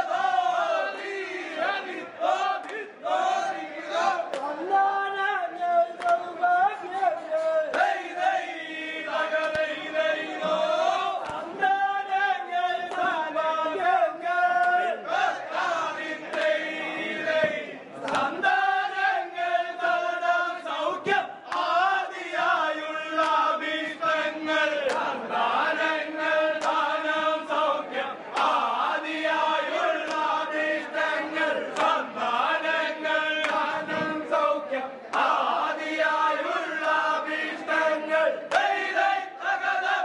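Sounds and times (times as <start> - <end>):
men chanting in unison: 0.0 - 40.0
sharp knocks or claps: 9.4 - 9.8, 10.4 - 11.6, 12.8 - 13.3, 16.3 - 16.6, 17.4 - 18.4, 24.8 - 25.1, 26.5 - 26.9, 38.5 - 38.7.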